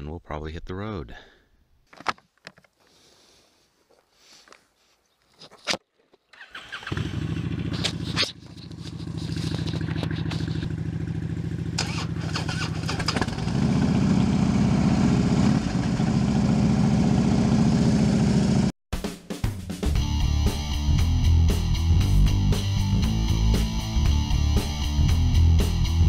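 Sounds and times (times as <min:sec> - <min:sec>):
motorcycle engine idling: 0:06.8 - 0:18.7.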